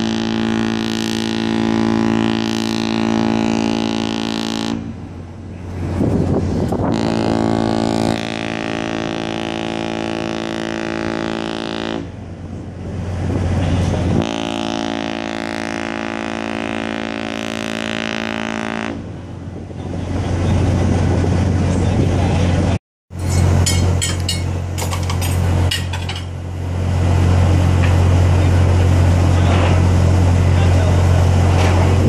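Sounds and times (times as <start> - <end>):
ship horn blasts: 0.0 - 20.4.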